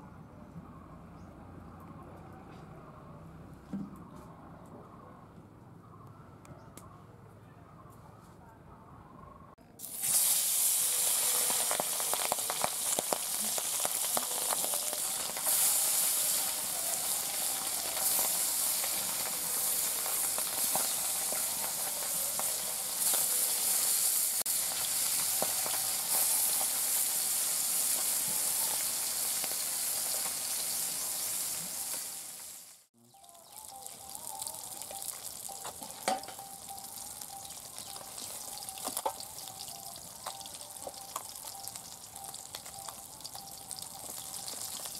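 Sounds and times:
fish sizzling in hot oil: 9.8 - 44.9.

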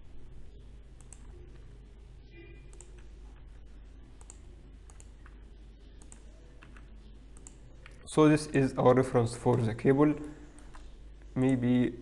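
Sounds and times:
low steady hum: 0.0 - 12.0
computer mouse clicks: 1.0 - 1.7, 2.7 - 3.1, 4.2 - 5.4, 6.0 - 8.0, 10.2 - 11.6.

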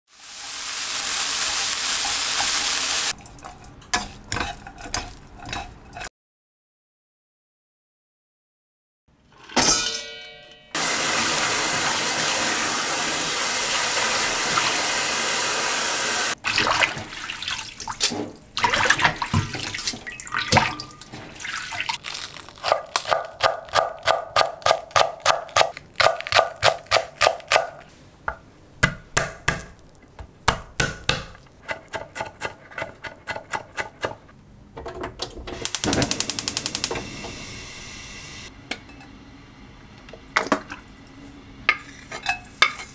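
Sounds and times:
gas stove igniter clicking: 35.6 - 37.1.

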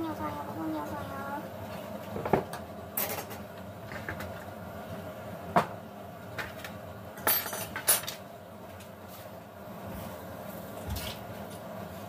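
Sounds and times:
dishes and utensils clinking: 7.2 - 8.2.

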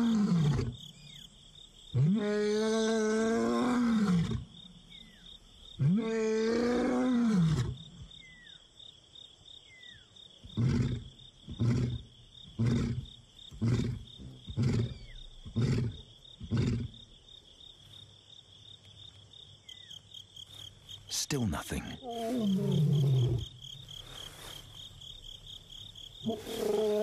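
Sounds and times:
lion roaring: 13.6 - 17.0, 22.0 - 23.6, 26.2 - 27.0
lion grunting: 21.6 - 23.6, 26.2 - 27.0.

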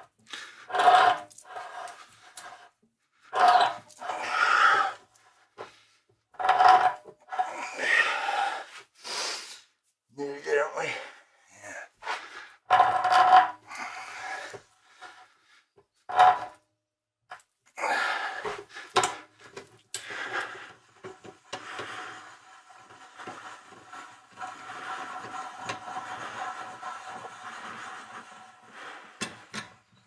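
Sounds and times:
threading die scraping metal: 3.4 - 4.1.

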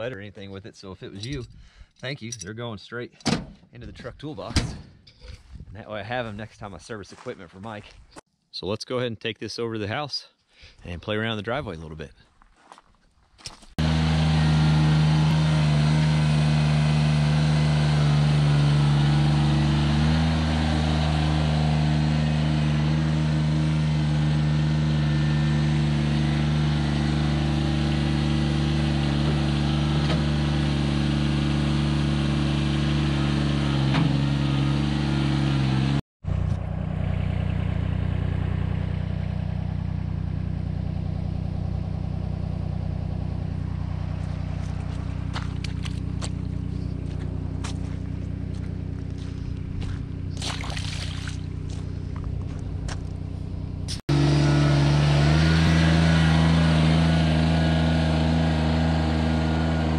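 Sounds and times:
tractor diesel engine running: 13.8 - 59.9.

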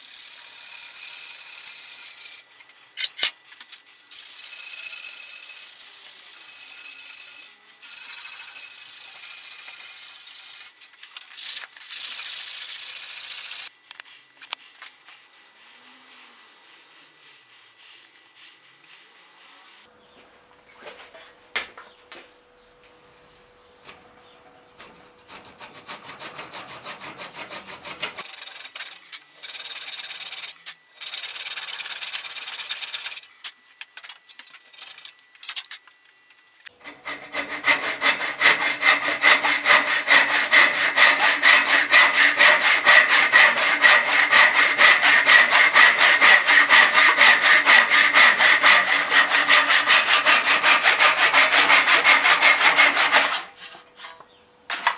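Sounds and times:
hand saw cutting wood: 24.8 - 33.3, 36.7 - 54.9.

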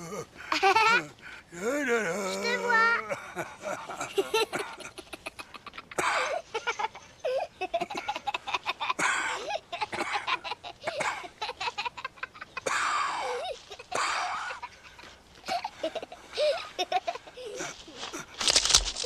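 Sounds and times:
old man wheezing: 0.0 - 2.2, 9.0 - 9.7, 12.6 - 18.3
child giggling: 0.5 - 1.1, 2.4 - 17.8
rustling through leafy plants: 13.3 - 19.0.

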